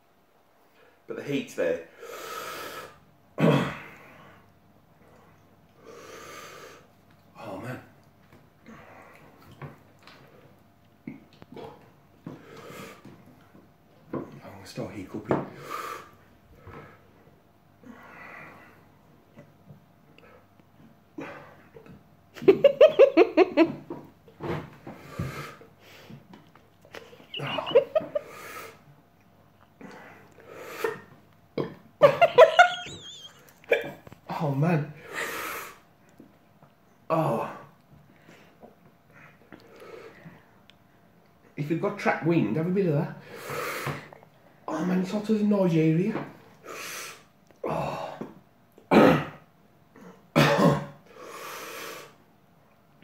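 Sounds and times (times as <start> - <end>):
man coughing: 3.4 - 4.0, 50.4 - 51.0
man laughing and gasping muffled: 27.0 - 28.5.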